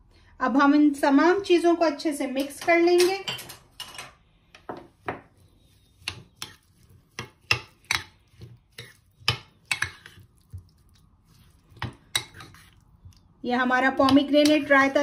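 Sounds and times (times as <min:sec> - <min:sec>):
metal spoon scraping ceramic bowl: 0:06.0 - 0:10.3, 0:11.4 - 0:12.8.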